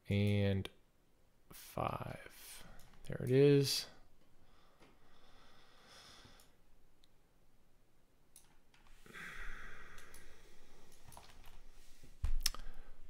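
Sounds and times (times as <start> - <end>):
soft breath out: 8.9 - 13.0
computer mouse clicks: 10.0 - 11.6.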